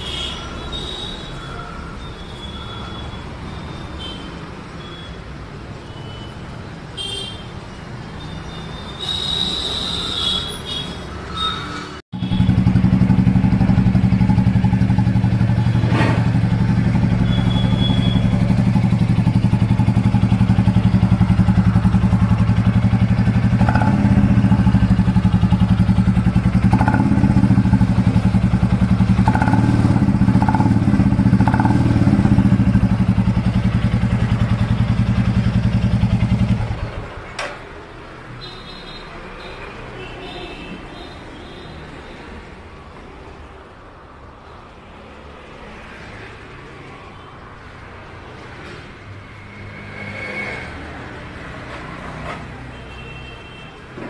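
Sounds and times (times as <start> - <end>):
motorcycle engine idling: 12.2 - 37.2.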